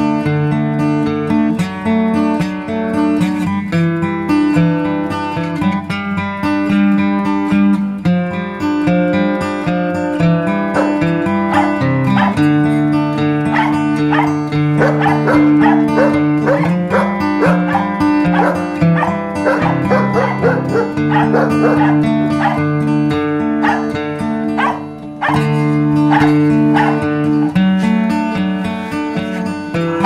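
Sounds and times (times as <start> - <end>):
background music: 10.5 - 27.5
dog barking: 10.7 - 12.5, 13.5 - 22.7, 23.6 - 24.0, 24.6 - 25.5, 26.1 - 27.6.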